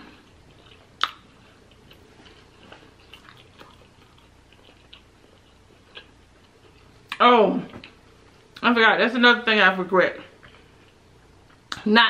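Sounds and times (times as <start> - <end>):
faint chewing: 0.0 - 8.6, 10.3 - 11.9
soft mouth clicks: 1.0 - 1.2.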